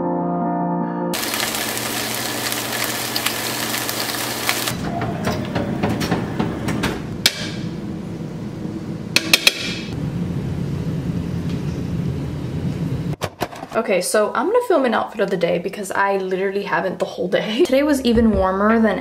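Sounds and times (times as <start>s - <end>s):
food sizzling in a frying pan: 1.2s - 4.8s.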